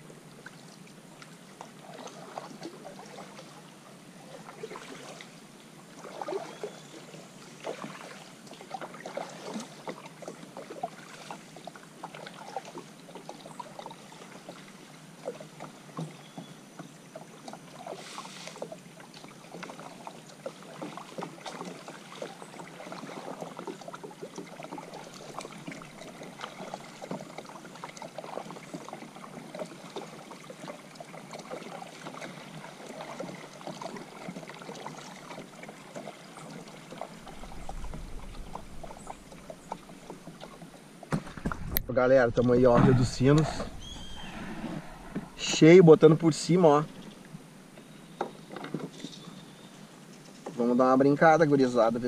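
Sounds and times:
paddle splashing in water: 0.4s - 49.7s
water dripping: 37.0s - 45.6s.

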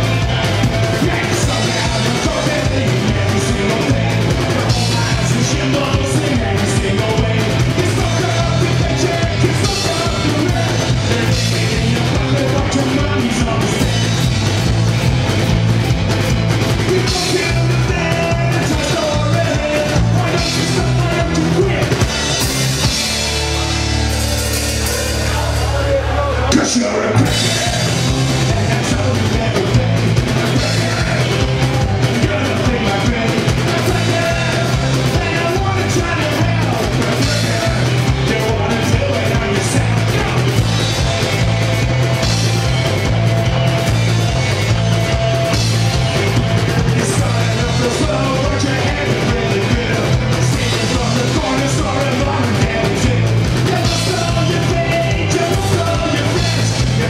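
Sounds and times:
person singing: 0.0s - 14.1s, 24.4s - 42.0s, 45.5s - 57.0s
rock and roll band playing: 0.0s - 57.0s.

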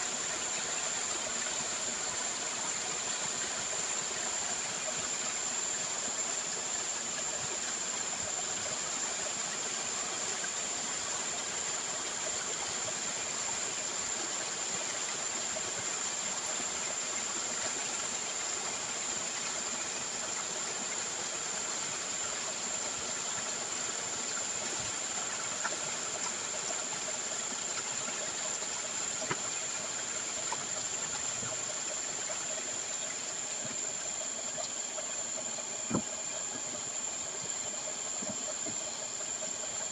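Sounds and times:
water rushing and splashing: 22.0s - 39.9s.

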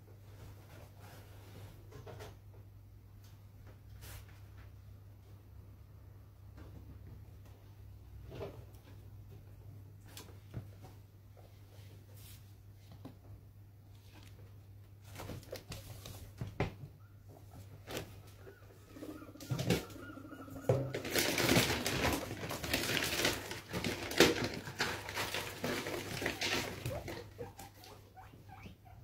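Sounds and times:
guinea pigs rustling in bedding: 7.3s - 29.0s.

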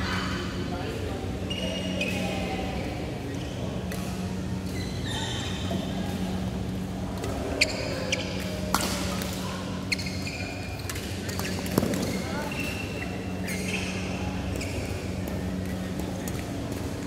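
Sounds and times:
steady low hum: 0.0s - 17.0s
shoe squeak: 1.4s - 2.4s, 4.6s - 5.9s, 7.5s - 8.4s, 9.8s - 15.0s
rackets striking shuttlecock: 8.4s - 9.4s, 10.9s - 12.8s.

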